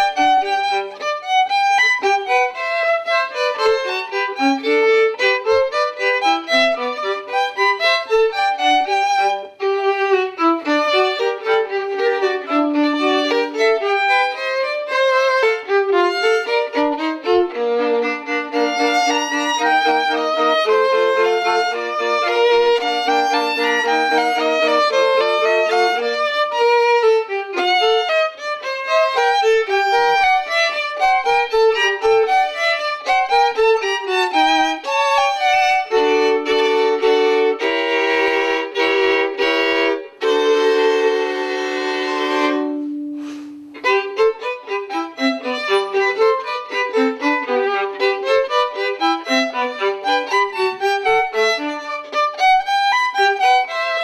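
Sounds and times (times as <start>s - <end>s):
solo violin playing: 0.0s - 54.0s.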